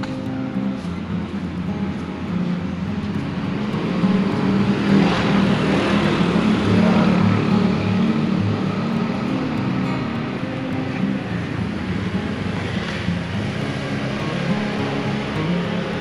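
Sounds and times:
motor scooter passing by: 3.2 - 16.0.

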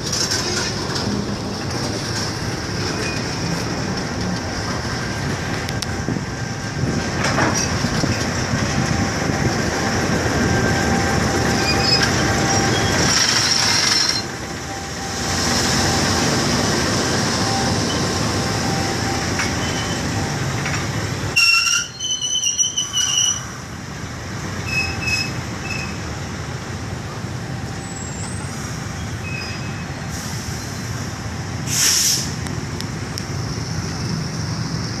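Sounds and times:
wheels rumbling on rails: 0.0 - 35.0
high wheel squeals: 2.8 - 3.6, 9.8 - 20.5, 21.4 - 23.6, 24.6 - 26.1, 27.7 - 31.0.

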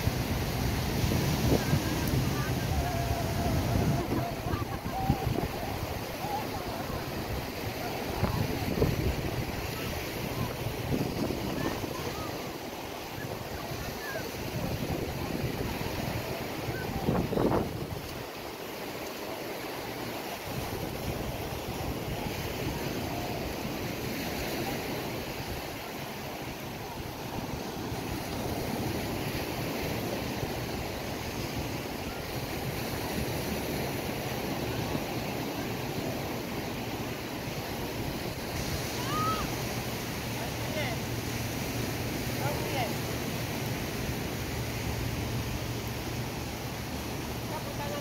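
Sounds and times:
wind noise on microphone: 0.0 - 18.4
waves washing on shore: 0.0 - 48.0.

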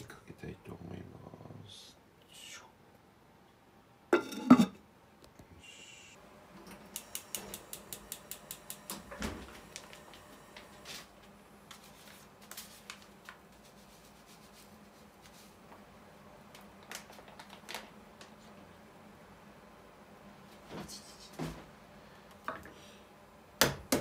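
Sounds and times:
burner lighting thump: 7.0 - 10.7
paper packets crinkling: 11.7 - 13.8, 16.6 - 18.4.

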